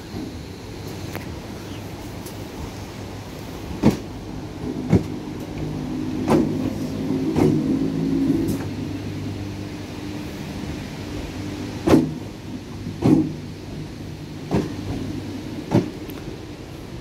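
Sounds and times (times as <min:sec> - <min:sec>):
train wheels clunking over track: 0:00.0 - 0:01.4, 0:02.1 - 0:08.9, 0:11.2 - 0:16.4
train traction motors humming: 0:00.0 - 0:17.0.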